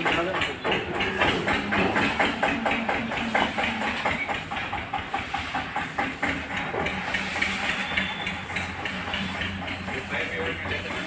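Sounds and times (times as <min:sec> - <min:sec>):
brooms swishing on wet concrete: 0:01.0 - 0:11.0.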